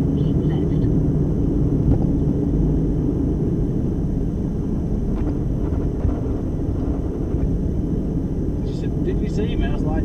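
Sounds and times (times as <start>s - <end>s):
truck engine and road drone: 0.0s - 10.0s.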